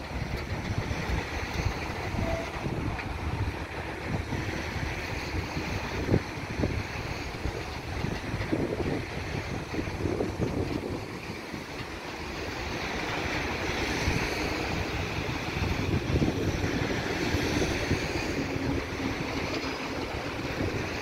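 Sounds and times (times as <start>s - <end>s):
freight train wheels rumbling: 0.0s - 21.0s.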